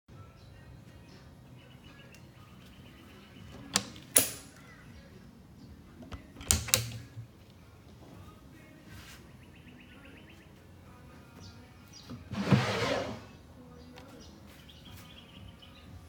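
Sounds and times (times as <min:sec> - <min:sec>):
plastic latch clicks: 0:03.6 - 0:04.6, 0:06.0 - 0:07.3.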